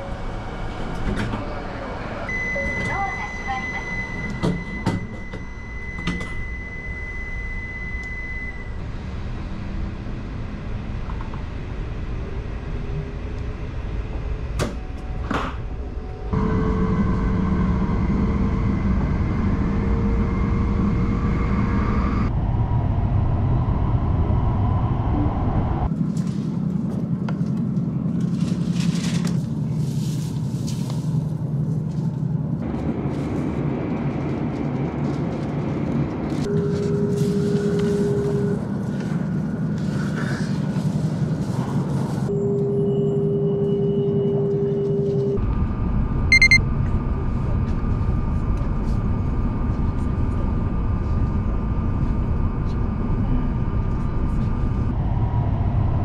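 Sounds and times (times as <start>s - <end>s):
steady high tone: 2.3s - 8.8s, 46.3s - 46.6s.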